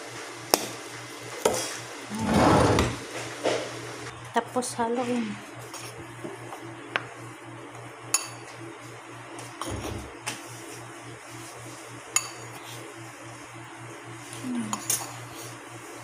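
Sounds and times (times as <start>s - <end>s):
spoon clinking on plate: 8.2s - 8.4s, 12.2s - 12.4s
spoon stirring flour: 10.3s - 13.4s.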